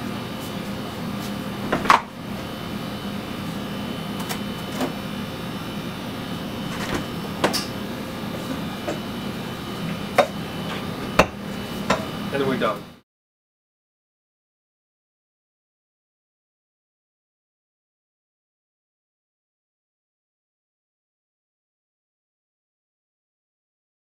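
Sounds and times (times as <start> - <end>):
steady machine hum: 0.0 - 13.0
freezer latch and door clunks: 1.6 - 2.2, 6.6 - 7.6.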